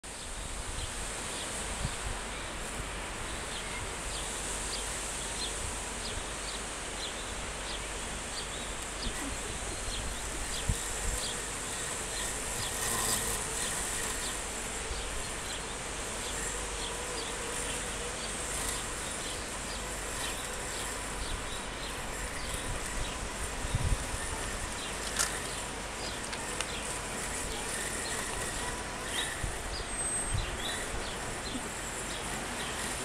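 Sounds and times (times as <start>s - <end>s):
robotic mower motor hum: 0.5s - 33.0s.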